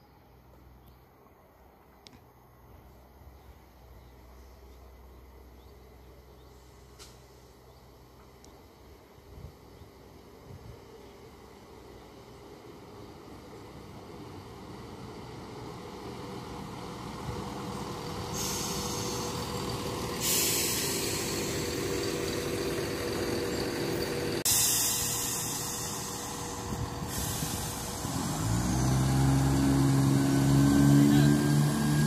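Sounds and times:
diesel engine: 0.0 - 32.0
train wheels rumbling on rails: 13.0 - 32.0.

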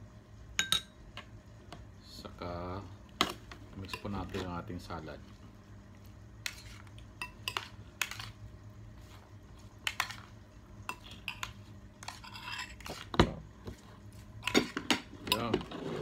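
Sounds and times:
spoons clinking against bowls: 0.6 - 1.0, 3.8 - 4.4, 6.5 - 8.4, 10.9 - 13.0, 14.4 - 15.6.

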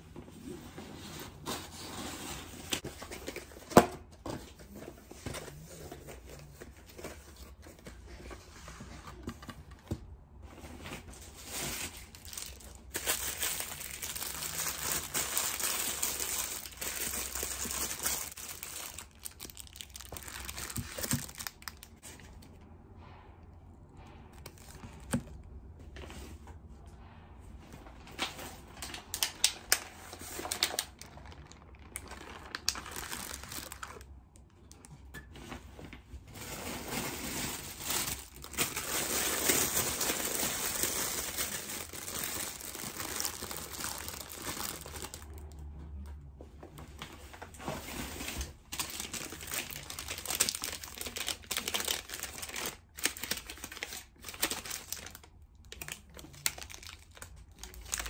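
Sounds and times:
plastic bags crinkling: 11.1 - 22.2, 28.7 - 34.2, 36.2 - 45.5, 48.2 - 58.0.

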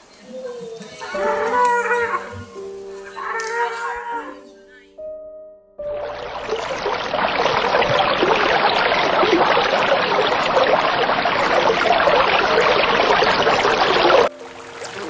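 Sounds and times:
water rushing and splashing: 6.0 - 15.0.

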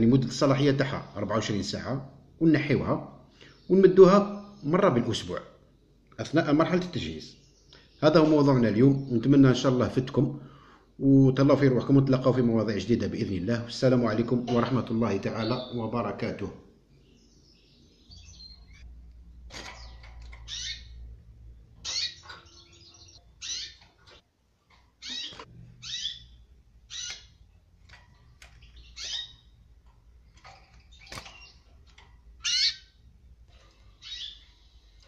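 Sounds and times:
canaries chirping: 13.8 - 35.0.

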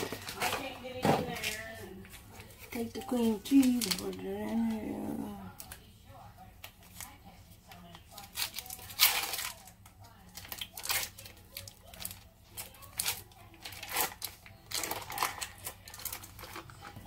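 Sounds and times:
foil wrapper crinkling and tearing: 2.4 - 4.8, 6.6 - 17.0.

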